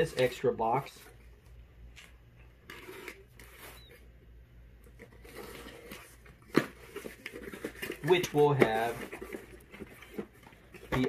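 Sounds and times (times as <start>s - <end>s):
cardboard scraping and rubbing: 0.0s - 1.2s, 2.6s - 4.1s, 5.0s - 11.0s.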